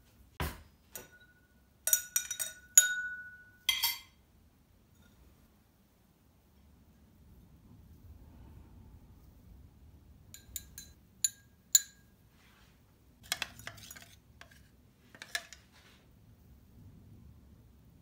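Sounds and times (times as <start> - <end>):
glasses clinking: 0.9 - 4.2
tableware clattering: 0.9 - 4.2, 13.2 - 15.7.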